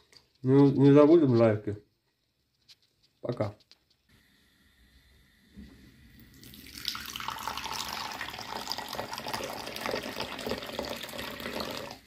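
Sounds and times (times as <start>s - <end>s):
tea pouring into bowl: 6.2s - 12.0s.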